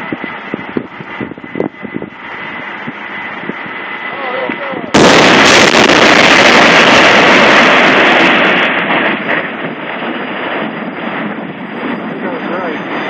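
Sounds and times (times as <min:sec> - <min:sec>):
low rumble: 0:00.0 - 0:13.0
explosion blast: 0:04.6 - 0:13.0.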